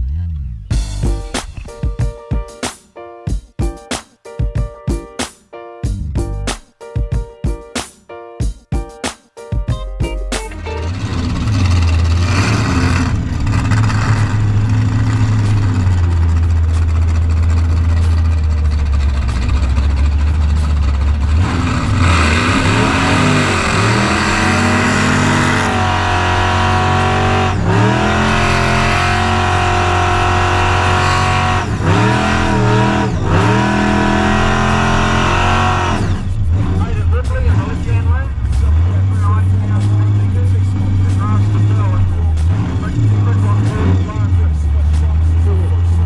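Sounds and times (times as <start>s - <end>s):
supercharged engine idling and revving: 10.4s - 46.0s.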